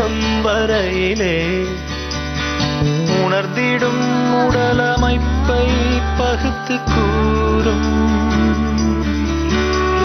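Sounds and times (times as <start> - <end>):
sliding melody: 2.8 - 10.0.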